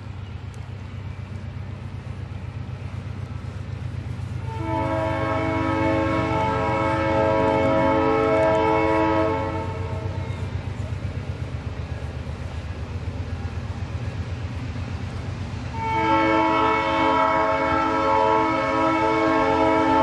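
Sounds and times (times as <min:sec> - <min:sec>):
low pulsing rumble: 0:00.0 - 0:15.8
steam locomotive whistle blast: 0:04.4 - 0:10.5, 0:15.7 - 0:20.0.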